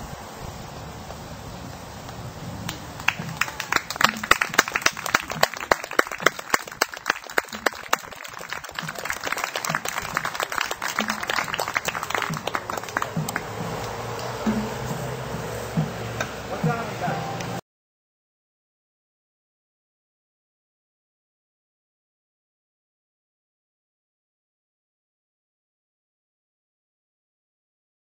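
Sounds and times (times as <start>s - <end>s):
hands clapping: 2.7s - 14.9s.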